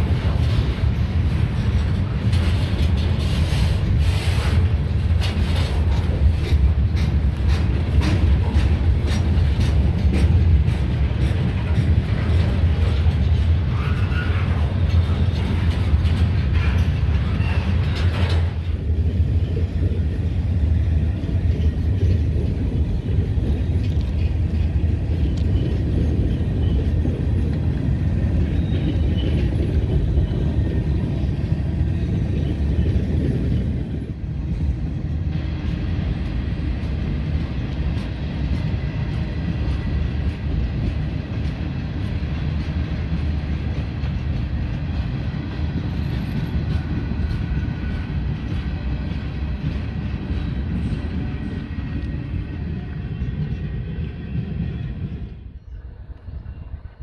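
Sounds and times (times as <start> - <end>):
wheels clicking over track: 0.0 - 34.2
freight cars rumbling on rails: 0.0 - 57.0.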